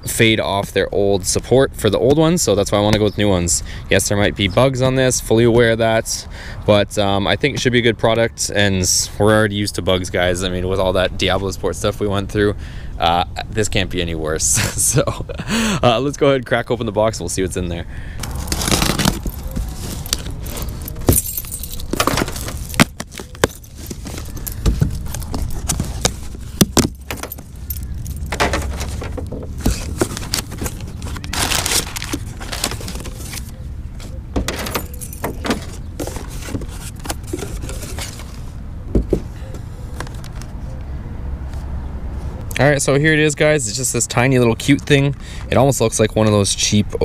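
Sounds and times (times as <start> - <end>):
cardboard flaps pulled open: 18.2 - 20.3, 28.5 - 33.5
key scraping through packing tape: 18.2 - 29.0, 29.7 - 33.5
packing paper rustling: 18.2 - 33.5, 34.4 - 38.6
sharp clicks and scratches: 18.2 - 38.4
key ring jangling: 19.3 - 22.4, 27.1 - 28.4, 34.5 - 35.7.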